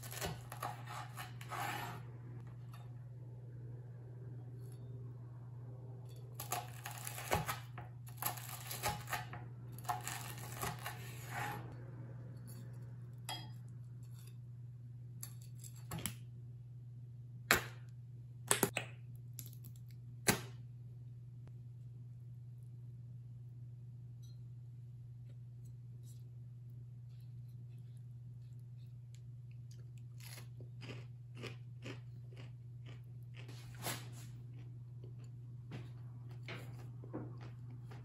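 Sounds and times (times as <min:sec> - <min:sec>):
knife crunching fried crust: 0:00.0 - 0:02.0, 0:06.4 - 0:11.3, 0:30.2 - 0:34.3
steady low hum: 0:00.0 - 0:38.0.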